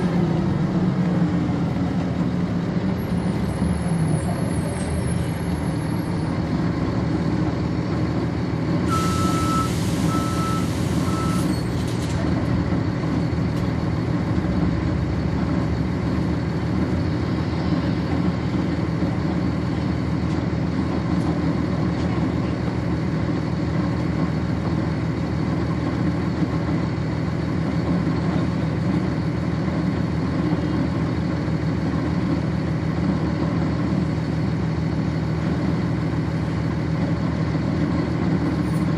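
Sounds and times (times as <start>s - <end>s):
bus diesel engine idling: 0.0s - 38.9s
short beeps: 8.9s - 11.7s.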